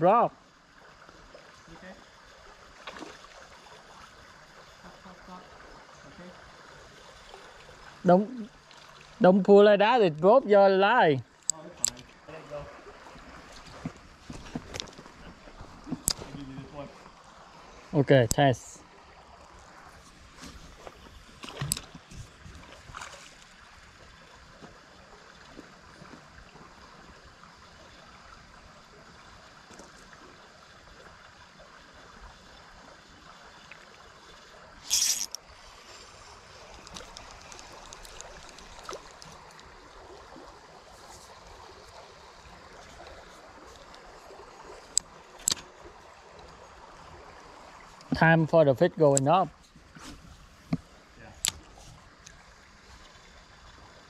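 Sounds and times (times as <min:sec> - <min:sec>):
creek water flowing: 0:00.0 - 0:54.0.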